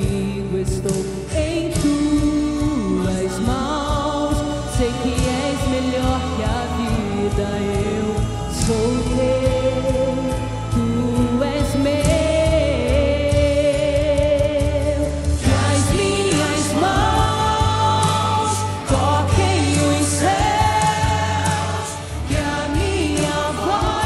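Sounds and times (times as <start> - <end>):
instrumental backing: 0.0 - 24.0
woman singing: 0.0 - 24.0.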